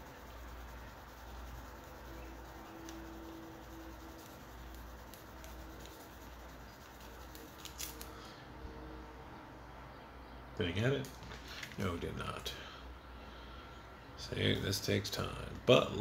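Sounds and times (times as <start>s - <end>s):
pad rubbing on plastic: 0.0s - 8.0s.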